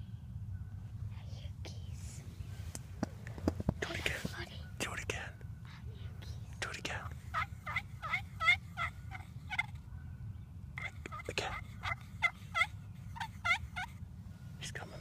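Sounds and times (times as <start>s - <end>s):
wild turkey yelping: 7.1s - 9.9s, 10.8s - 14.0s.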